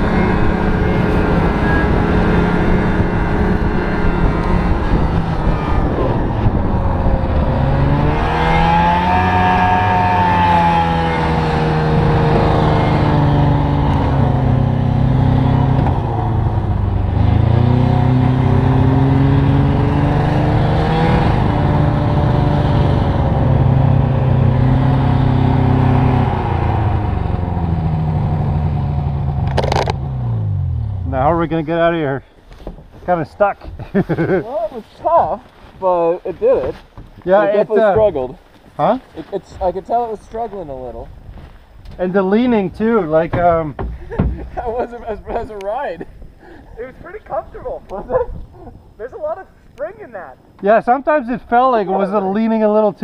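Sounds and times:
snowmobile engine revving: 0.0 - 32.0.

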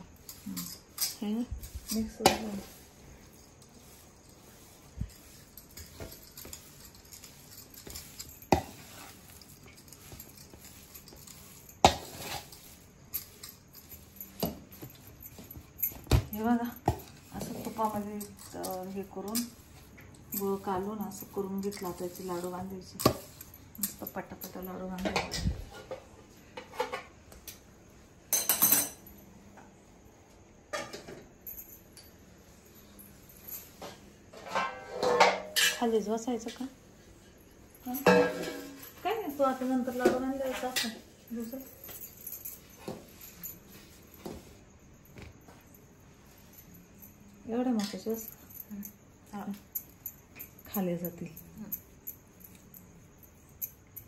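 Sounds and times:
metal spatula scraping a pan: 10.5 - 13.4, 34.3 - 35.9, 38.0 - 38.8
steel pots clinking and clattering: 34.3 - 36.2, 37.9 - 41.0.

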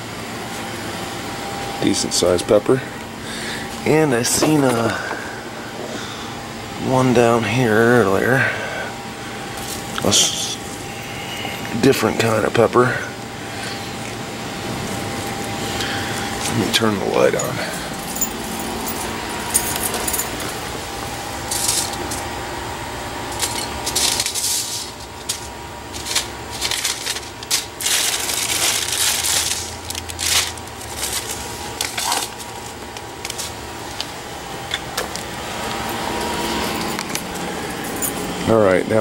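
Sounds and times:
faint steady hum: 0.0 - 39.0
plant leaves rustling: 25.9 - 33.6.

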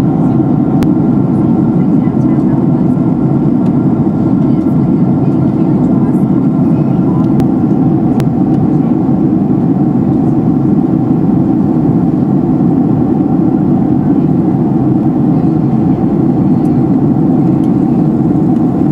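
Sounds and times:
aircraft cabin engine drone: 0.0 - 18.9.

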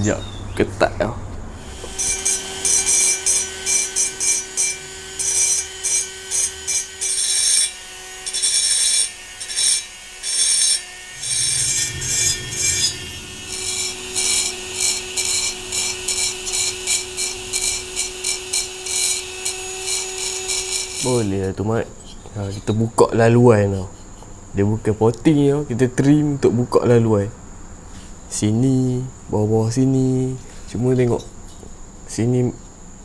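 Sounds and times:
rotary grinder motor whining: 1.5 - 21.5
grinder bit scraping metal: 1.6 - 23.0.

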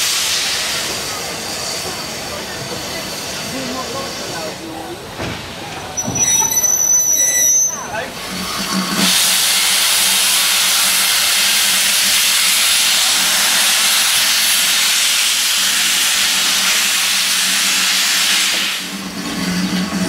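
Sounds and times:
steam locomotive hissing steam: 0.0 - 20.0.

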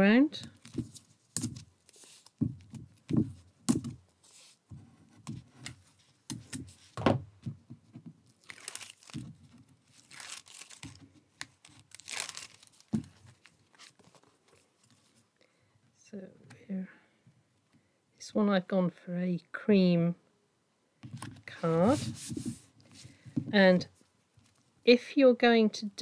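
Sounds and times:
paper crinkling and rustling: 8.3 - 15.2
sheets sliding swishes: 21.5 - 22.7.

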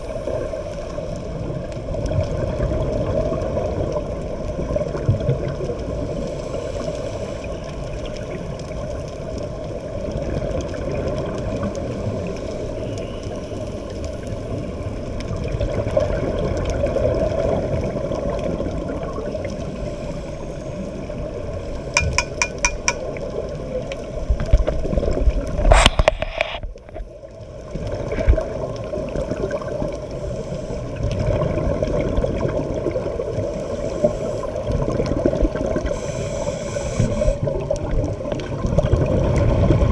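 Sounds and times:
bubbles gurgling: 15.4 - 19.3, 31.0 - 33.5, 37.4 - 39.9
muffled underwater rush: 23.1 - 39.9.

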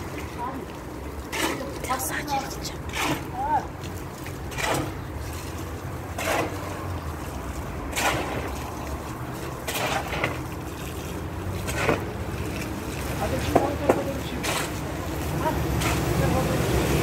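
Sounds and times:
water running from a hose: 0.0 - 17.0
shovel scraping wet sand: 1.3 - 2.0, 4.4 - 6.9, 7.9 - 8.7, 9.4 - 15.0.

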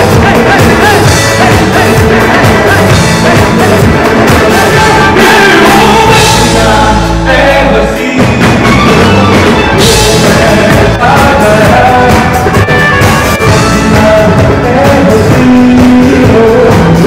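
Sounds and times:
man singing into microphone: 0.0 - 17.0
pop-rock band playing: 0.0 - 17.0.

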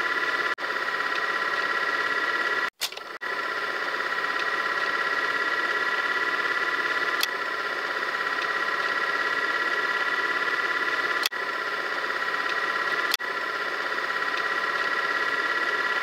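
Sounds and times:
click: 2.8 - 3.1
fluttering electronic buzzing tone: 3.6 - 16.0.

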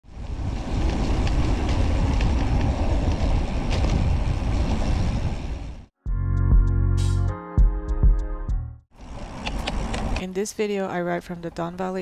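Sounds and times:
bike tyres rumbling on asphalt: 0.0 - 5.9, 8.9 - 10.2
wind rushing over microphone: 0.0 - 5.9
music: 6.0 - 8.9.

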